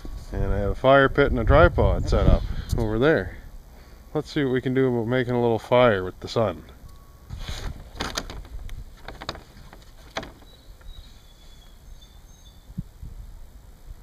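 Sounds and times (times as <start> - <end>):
wind rumbling on microphone: 0.0 - 3.6, 7.3 - 11.2, 11.8 - 14.0
handling clicks and knocks: 7.6 - 11.0.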